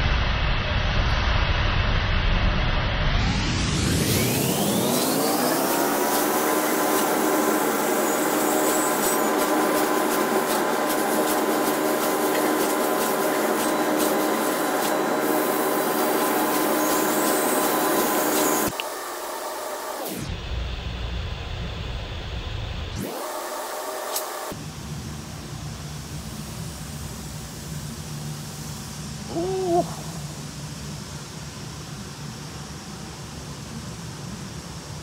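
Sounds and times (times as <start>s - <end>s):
laser cutting machine whine: 3.2s - 20.8s, 22.9s - 26.2s
hiss: 3.2s - 35.0s.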